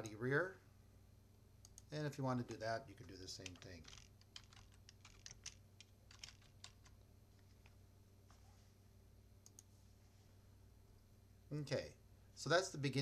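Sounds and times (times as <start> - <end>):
computer keyboard typing: 2.9 - 7.8.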